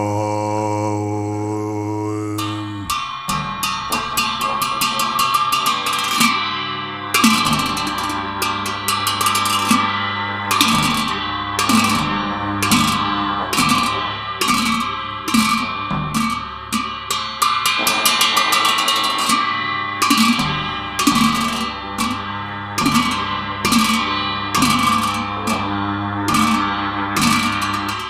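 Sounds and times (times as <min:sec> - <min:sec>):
ringing cymbal strokes: 0:02.2 - 0:28.0
deep drum beat: 0:10.5 - 0:28.0.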